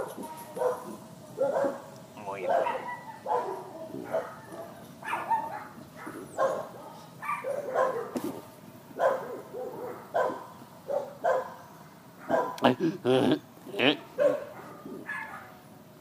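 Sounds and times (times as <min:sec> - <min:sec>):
man belching: 0:12.7 - 0:14.0.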